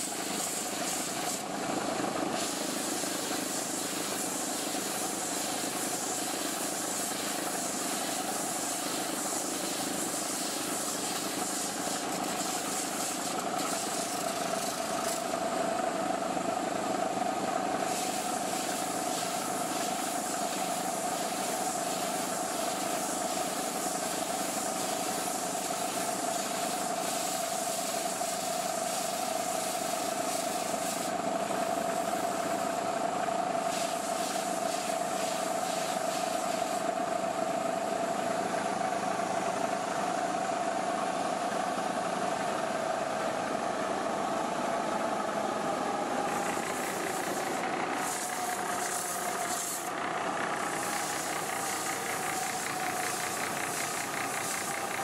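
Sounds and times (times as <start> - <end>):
wood rasping against sanding belt: 0.0 - 1.5, 2.3 - 15.3, 17.8 - 32.9, 33.7 - 36.8, 46.3 - 50.0, 50.6 - 55.0
belt sander humming: 45.8 - 55.0.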